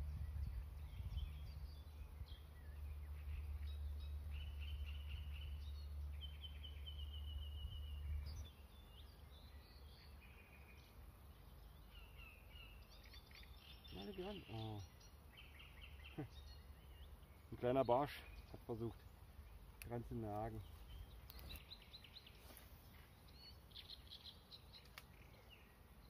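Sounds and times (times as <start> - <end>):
low steady rumble: 0.0 - 10.0
songbirds singing: 0.0 - 26.0.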